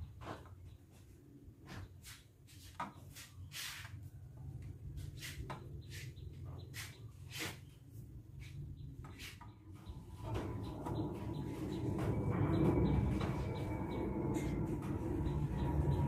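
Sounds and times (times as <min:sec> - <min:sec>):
low steady hum: 0:09.8 - 0:16.0.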